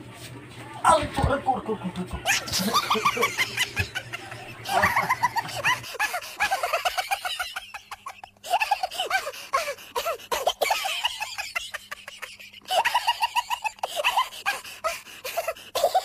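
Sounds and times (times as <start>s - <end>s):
people laughing: 2.0s - 16.0s.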